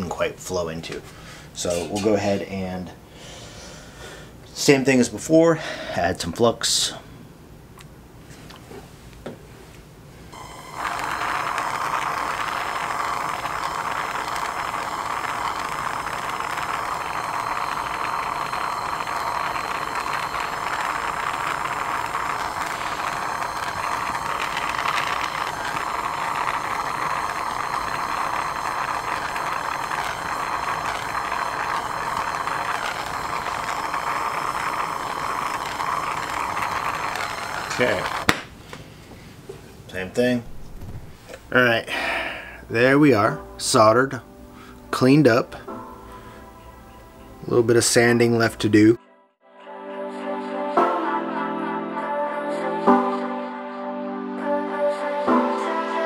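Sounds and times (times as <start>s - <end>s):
torch flame hissing: 10.4s - 38.3s.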